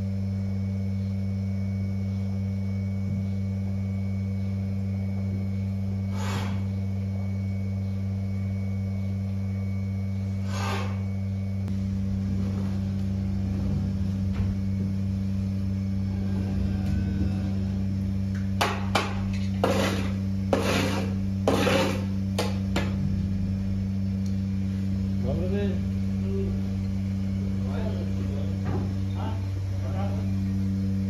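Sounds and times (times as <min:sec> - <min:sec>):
low electrical hum: 0:00.0 - 0:31.0
cows puffing breath: 0:06.1 - 0:06.7
scraper scraping concrete: 0:19.3 - 0:22.5.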